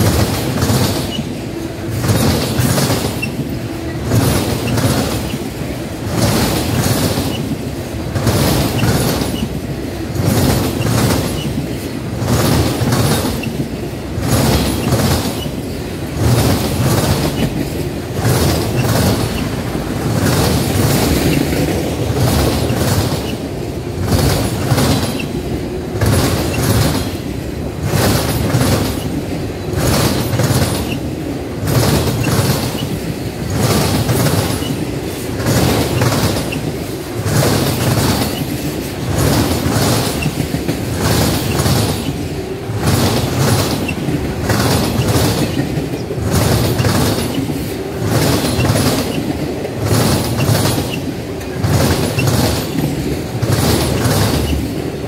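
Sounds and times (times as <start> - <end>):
train wheels rumbling on rail: 0.0 - 55.0
wheels clickety-clack: 0.0 - 55.0.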